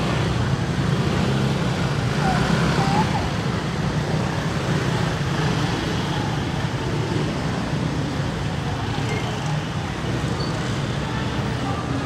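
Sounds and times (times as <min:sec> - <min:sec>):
motor scooters running: 0:00.0 - 0:12.0.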